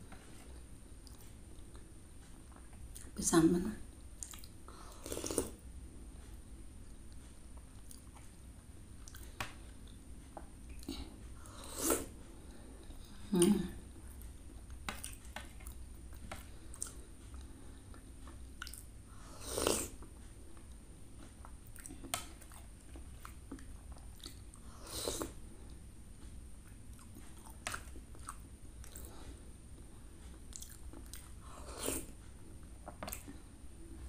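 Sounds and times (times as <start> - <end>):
chewing and mouth sounds: 4.2 - 5.6, 7.6 - 8.4, 9.0 - 10.0, 13.4 - 18.9, 21.4 - 25.4, 26.6 - 29.1, 30.3 - 32.1, 32.8 - 33.4.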